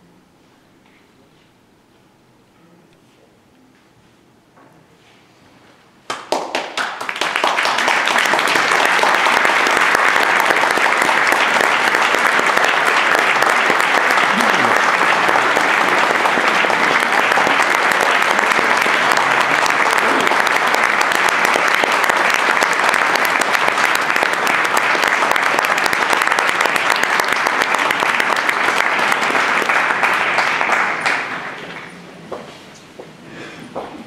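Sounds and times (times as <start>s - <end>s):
audience applauding: 6.1s - 32.1s.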